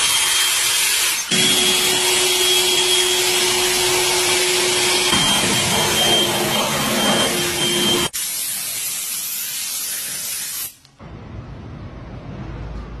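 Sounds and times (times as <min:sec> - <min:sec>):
air blower blasting: 0:00.0 - 0:08.8.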